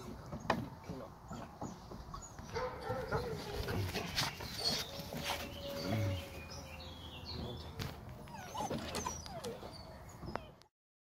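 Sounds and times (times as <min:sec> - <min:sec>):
puppies whining: 0:02.1 - 0:10.7
puppy whimpers: 0:08.2 - 0:10.7.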